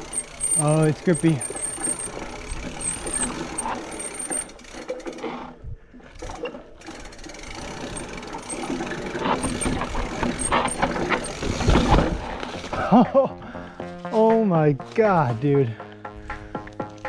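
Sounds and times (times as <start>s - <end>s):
mountain bike rolling on rocks: 0.0s - 13.1s.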